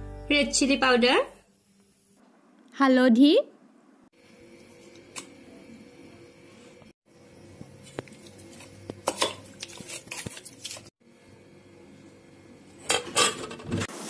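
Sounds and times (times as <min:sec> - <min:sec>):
chicken mixing in metal bowl: 0:08.0 - 0:10.9.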